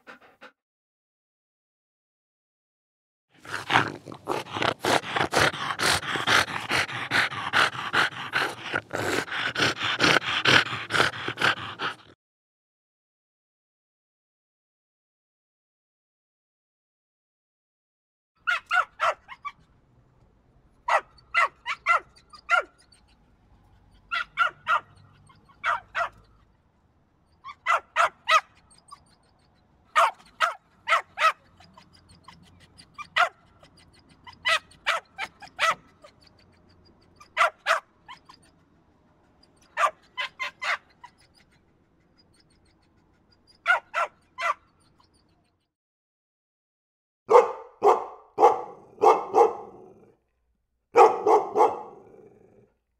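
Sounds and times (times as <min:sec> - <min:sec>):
dog barking: 0:18.4 - 0:19.6, 0:20.9 - 0:22.9, 0:24.1 - 0:26.3, 0:27.5 - 0:28.6, 0:29.9 - 0:31.8, 0:33.0 - 0:33.4, 0:34.4 - 0:35.9, 0:37.2 - 0:38.4, 0:39.8 - 0:40.9, 0:43.6 - 0:44.7, 0:47.3 - 0:50.2, 0:50.9 - 0:52.6.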